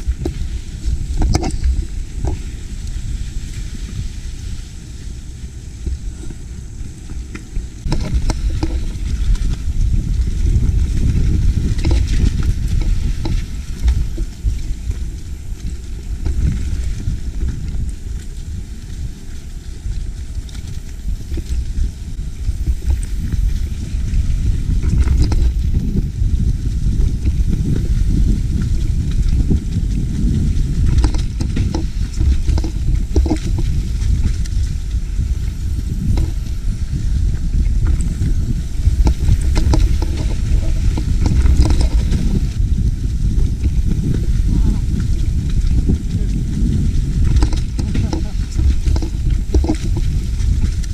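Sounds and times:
bike tyres rumbling on dirt: 0.0 - 50.9
wind on microphone: 0.0 - 50.9
bike knocks and rattles: 7.4 - 15.6, 22.4 - 50.9.

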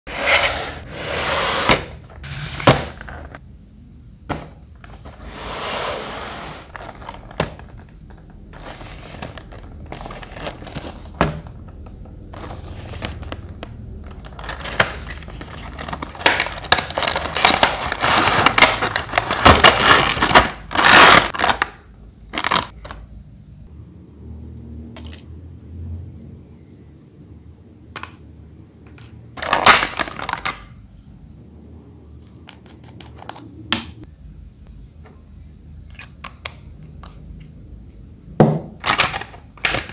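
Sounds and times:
packaging rustling and crinkling: 6.7 - 21.7, 22.4 - 22.8, 29.4 - 30.7.

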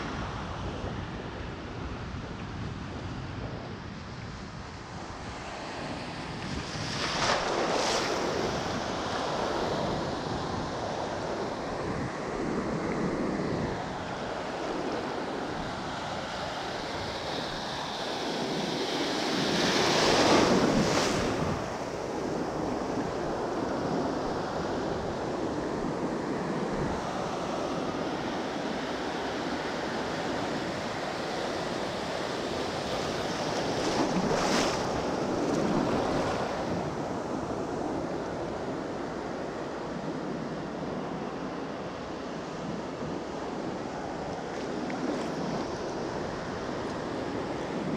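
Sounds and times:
wind buffeting microphone: 0.0 - 41.6
ocean surf washing onto beach: 4.3 - 47.9.

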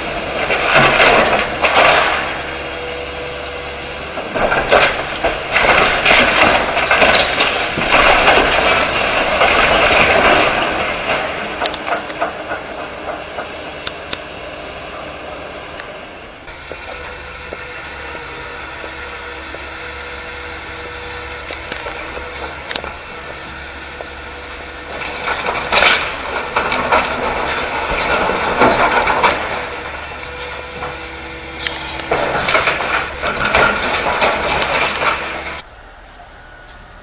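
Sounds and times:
structure crunching and cracking: 0.0 - 35.7
excavator engine humming: 0.0 - 37.0.

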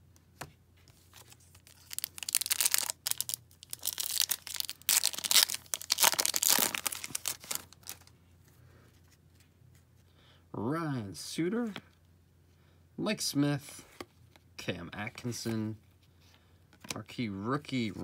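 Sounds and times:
foil wrapper tearing and crinkling: 1.5 - 8.0.

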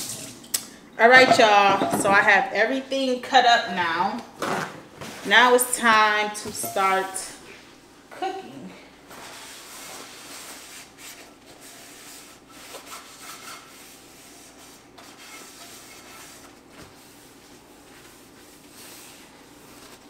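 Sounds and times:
paper towel rubbing a frying pan: 9.1 - 20.0.

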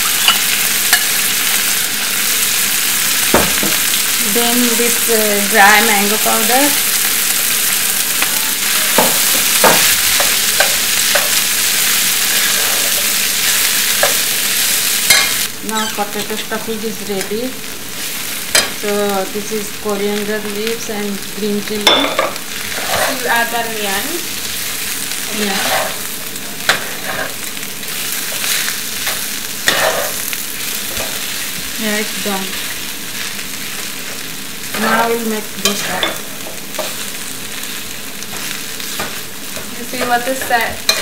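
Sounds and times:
frying sizzle: 0.0 - 41.0
spatula scraping pan: 12.3 - 13.1, 21.8 - 24.0, 25.3 - 27.4, 28.2 - 30.2, 34.7 - 37.0, 38.3 - 41.0.

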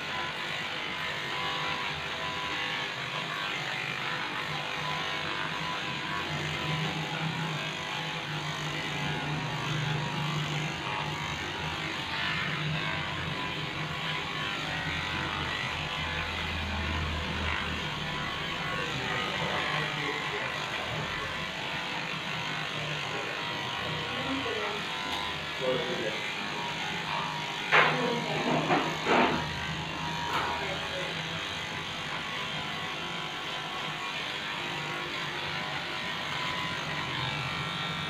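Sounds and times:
electric pet clipper humming: 0.0 - 38.0
hiss of clipper cutting hair: 0.0 - 38.0.

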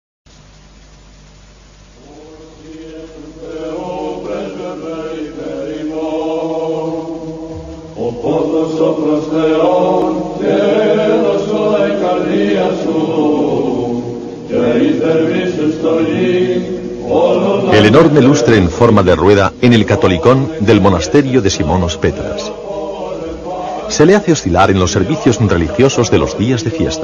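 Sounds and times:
group of voices chanting: 2.0 - 18.9, 19.5 - 27.0.

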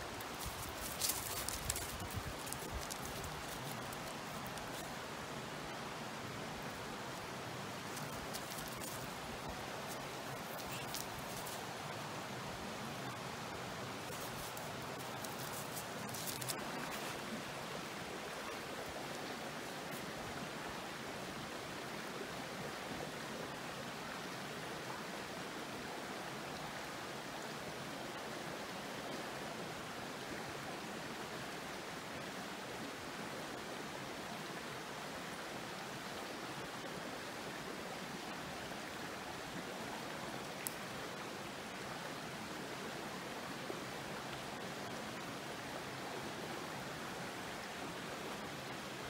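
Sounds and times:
mountain stream running: 0.0 - 49.0.

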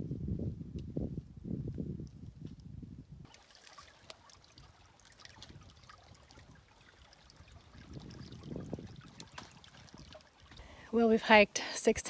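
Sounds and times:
small stream trickling: 3.2 - 11.4.

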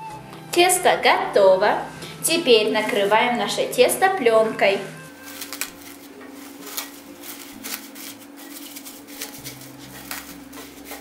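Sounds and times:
plastic cling film crinkling: 5.0 - 11.0.

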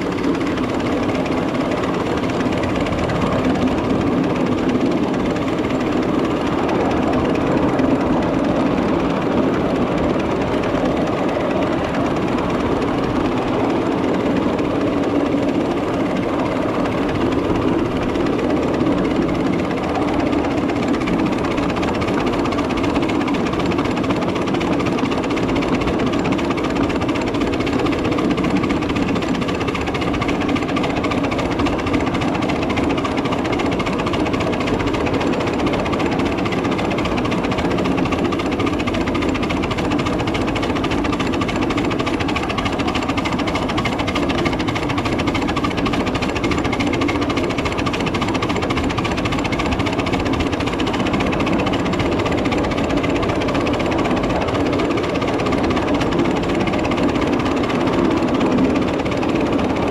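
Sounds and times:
miniature train clattering: 0.0 - 59.9.

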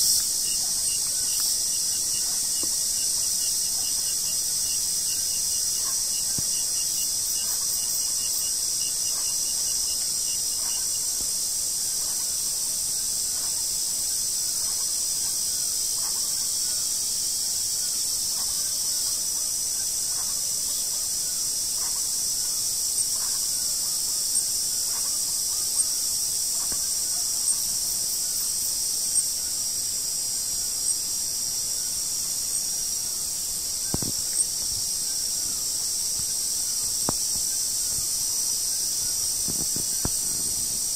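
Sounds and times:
chorus of night insects: 0.0 - 40.9.

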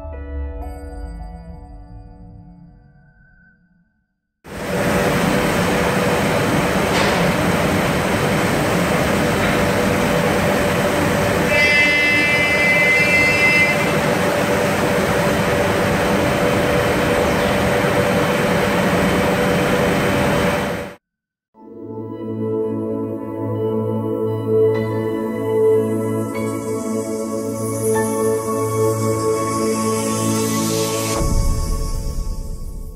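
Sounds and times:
cnc router spindle hum: 4.5 - 20.9
high-pitched whine: 4.5 - 21.0
noisy background: 4.5 - 21.0.

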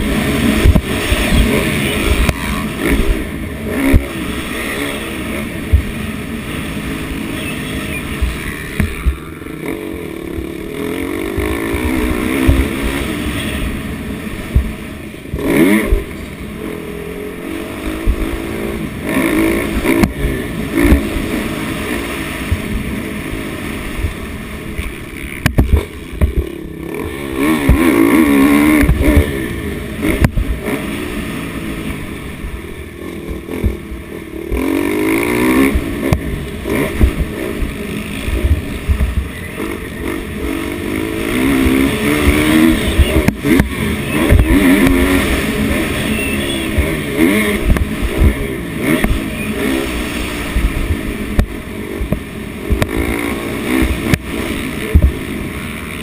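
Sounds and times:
dirt bike engine revving: 0.0 - 56.0
low thumps: 0.5 - 3.2, 5.6 - 6.1, 11.3 - 13.0, 14.4 - 16.1, 24.8 - 26.7, 35.6 - 39.4, 46.7 - 49.2, 53.8 - 55.3.

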